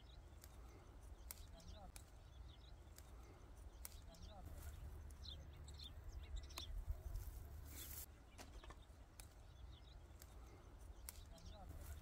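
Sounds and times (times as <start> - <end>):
low wind rumble: 4.4 - 8.1
plants rustling being picked: 6.5 - 12.0.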